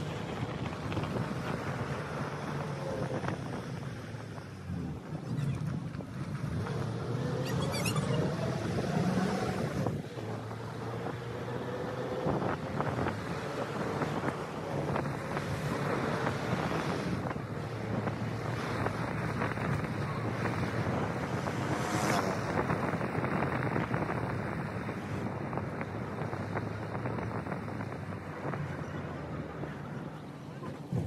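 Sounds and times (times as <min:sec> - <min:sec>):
car engine hum: 0:00.0 - 0:31.0
road noise: 0:00.0 - 0:31.0
wind buffeting the microphone: 0:08.0 - 0:31.0.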